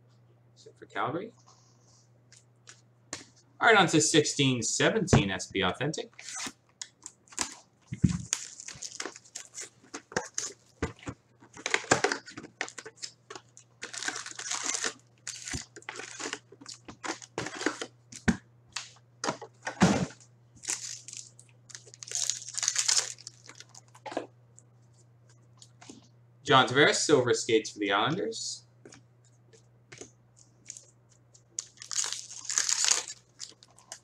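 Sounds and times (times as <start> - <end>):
foil packs tearing and crinkling: 7.3 - 10.7, 11.6 - 17.9, 20.6 - 24.0, 31.6 - 34.0.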